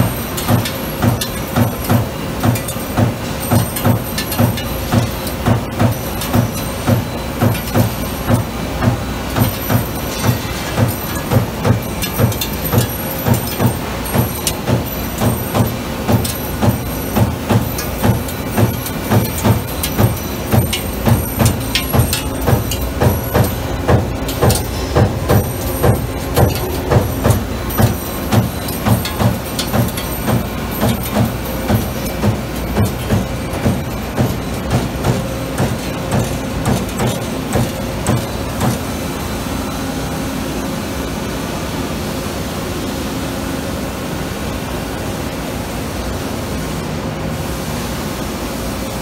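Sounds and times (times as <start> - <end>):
machine hiss and hum: 0.0 - 49.0
punch press thumping: 0.5 - 38.8.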